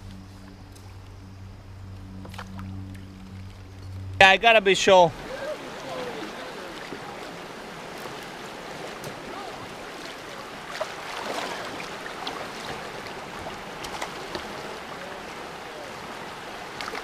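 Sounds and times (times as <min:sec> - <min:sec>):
river rippling over rocks: 0:01.6 - 0:17.0
splashes of wading: 0:05.1 - 0:17.0.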